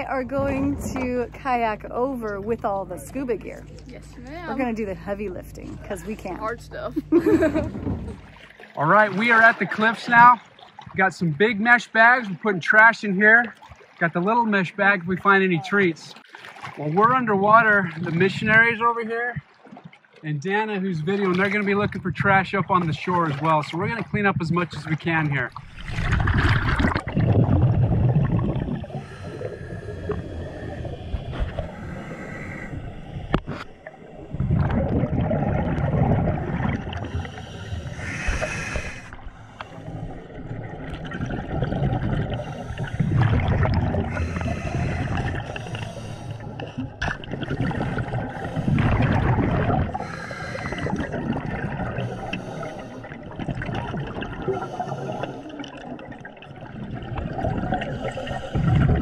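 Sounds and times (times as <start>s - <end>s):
rush of exhaled bubbles: 21.1s - 59.0s
regulator hissing inhale: 28.9s - 34.2s, 37.1s - 40.0s, 44.1s - 46.7s, 50.0s - 51.1s, 52.0s - 53.2s, 54.6s - 55.6s.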